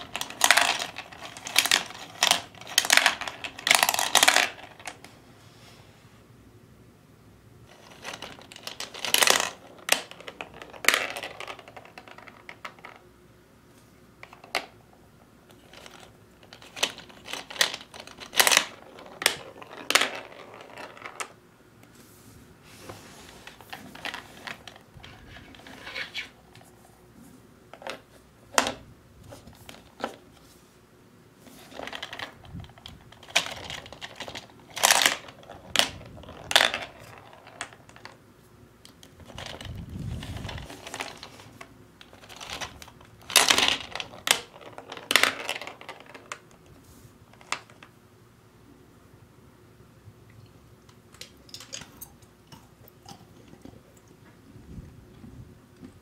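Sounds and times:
plastic gumballs clattering: 0.0s - 5.1s, 7.7s - 13.1s, 15.4s - 21.4s, 31.6s - 38.3s, 38.9s - 48.0s, 50.8s - 54.5s.

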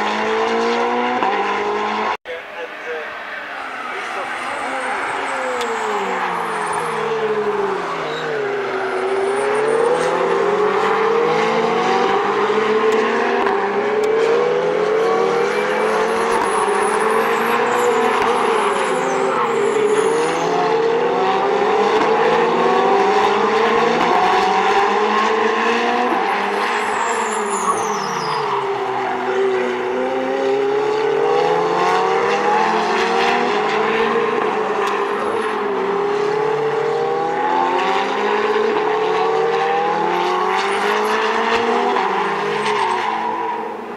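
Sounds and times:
race car engines revving: 0.0s - 43.9s
high tyre squeals: 2.4s - 38.8s, 39.7s - 43.9s.

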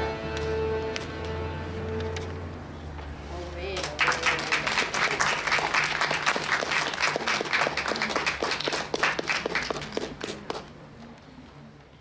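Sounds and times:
small audience clapping: 3.7s - 10.8s.

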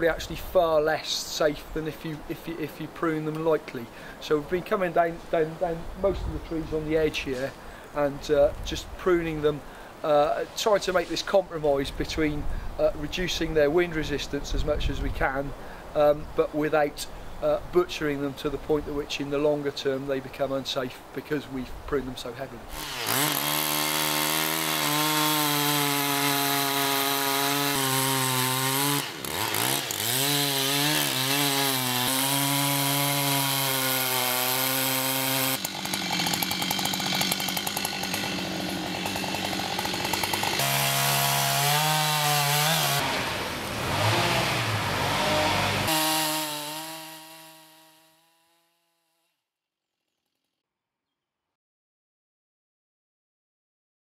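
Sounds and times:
chainsaw cutting into log: 22.7s - 49.3s.

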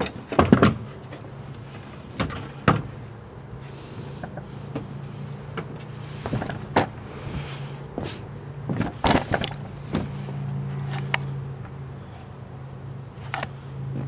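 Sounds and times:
heavy equipment knocks and bumps: 0.0s - 1.2s, 2.1s - 3.0s, 8.7s - 10.2s
steady low hum: 0.0s - 14.0s.

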